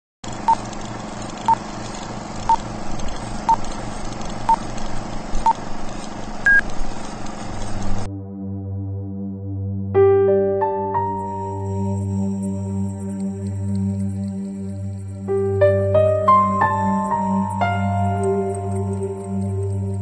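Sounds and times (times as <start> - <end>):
projector rattle and hiss: 0.3 - 8.1
low hum: 11.0 - 20.0.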